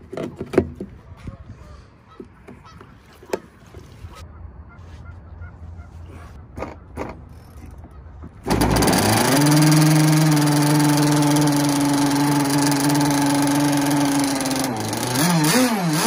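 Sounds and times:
two-stroke engine idling: 8.4s - 16.0s.

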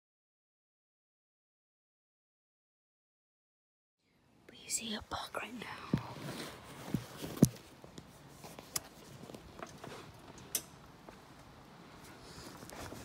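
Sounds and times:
faint hiss: 4.0s - 13.0s.

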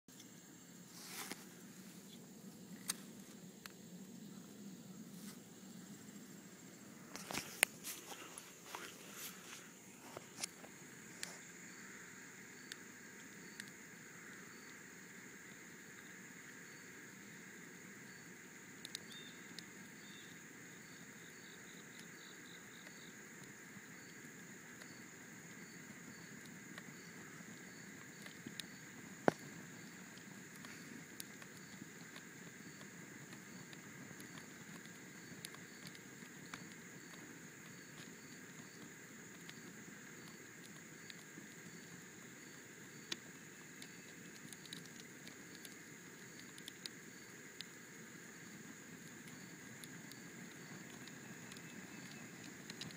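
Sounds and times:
insects chirping: 0.1s - 52.9s
cardboard crackling and popping: 26.4s - 52.9s.

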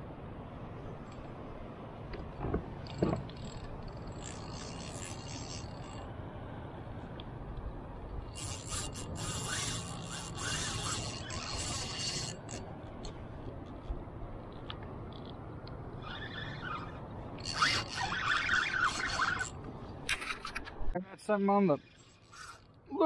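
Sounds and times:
fishing reel drag buzzing: 3.3s - 6.1s, 8.2s - 12.7s, 16.0s - 19.6s, 21.8s - 22.8s.

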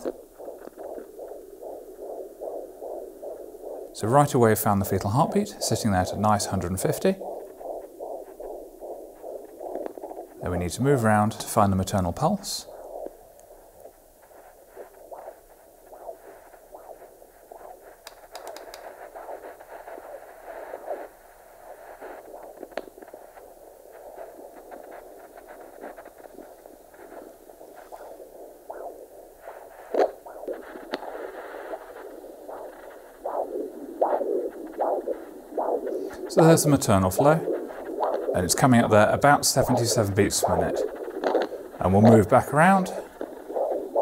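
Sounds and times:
doppler static hiss: 0.0s - 44.0s.

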